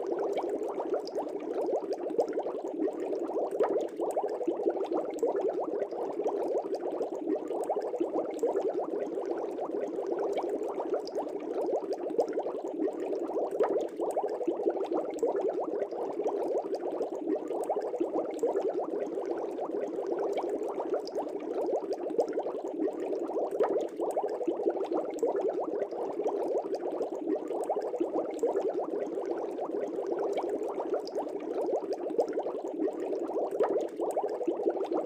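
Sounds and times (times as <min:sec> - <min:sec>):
aquarium air bubbles: 0:00.0 - 0:35.0.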